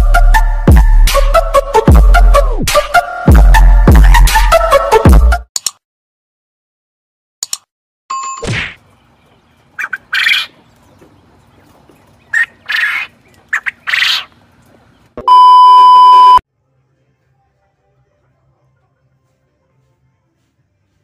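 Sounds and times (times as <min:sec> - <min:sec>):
quail calling: 0:09.8 - 0:10.6, 0:12.3 - 0:14.4.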